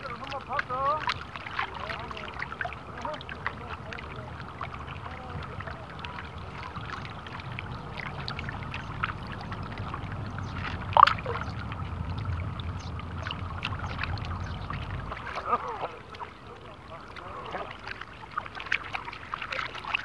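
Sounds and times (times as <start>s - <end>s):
small waves lapping: 0.0s - 20.0s
low rumble: 2.7s - 17.4s
water slap: 10.6s - 11.6s.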